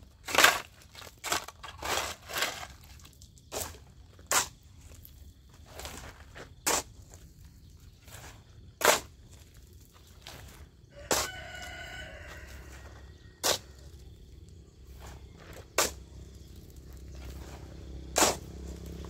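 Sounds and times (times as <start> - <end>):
rooster crowing: 10.9 - 14.0
hand tool chopping into ground: 15.4 - 16.1, 18.0 - 19.0.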